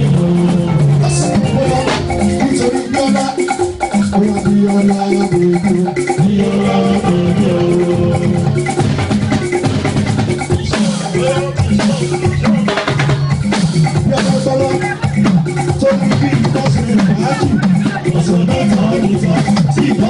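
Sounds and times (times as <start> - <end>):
man singing into microphone: 0.0 - 8.7, 10.6 - 12.8, 13.9 - 20.0
live music with drums: 0.0 - 20.0.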